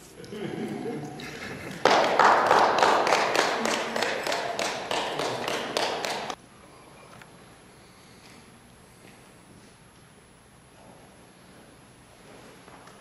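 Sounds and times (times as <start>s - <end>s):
audience applause: 1.2s - 6.4s.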